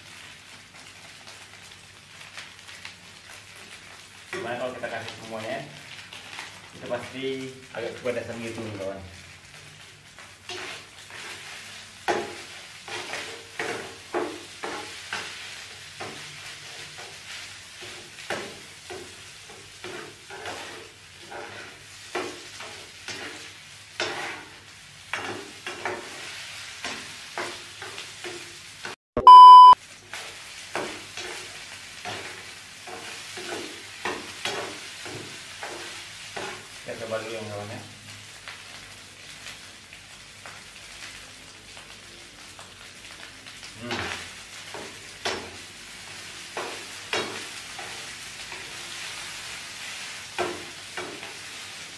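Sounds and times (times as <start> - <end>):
rice and egg sizzling in a pan: 0.0 - 29.0, 29.8 - 51.9
metal spoon scraping a pan: 10.5 - 15.4, 17.8 - 28.5, 30.1 - 36.7
short electronic beep: 29.2 - 29.8.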